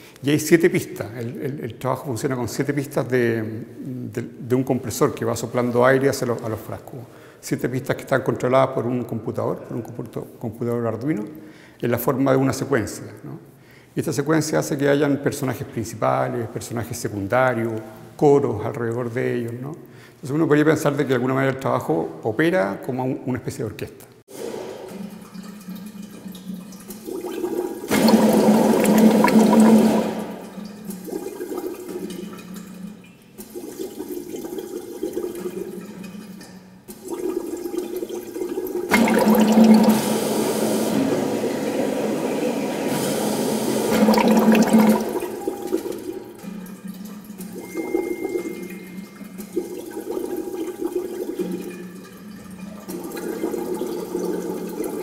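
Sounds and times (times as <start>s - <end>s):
air bubbling through water: 27.9s - 31.7s, 38.9s - 40.6s, 43.9s - 46.1s.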